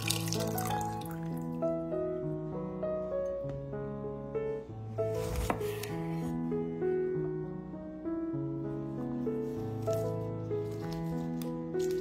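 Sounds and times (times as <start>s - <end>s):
juice pouring into a glass jug: 0.0s - 1.6s
background music with held notes: 0.0s - 12.0s.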